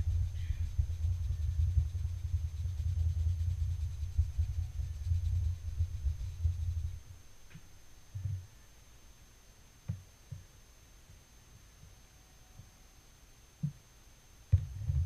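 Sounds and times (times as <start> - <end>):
sponge dabbing dull thumps: 0.0 - 8.4.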